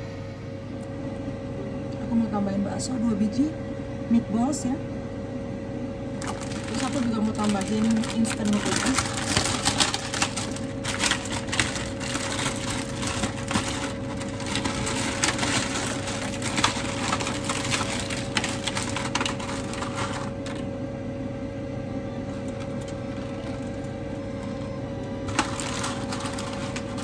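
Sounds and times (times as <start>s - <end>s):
steady low hum: 0.0s - 27.0s
dry noodles breaking: 6.2s - 20.7s, 25.2s - 27.0s
plastic packet crinkling: 6.2s - 20.7s, 22.4s - 24.6s, 25.3s - 27.0s.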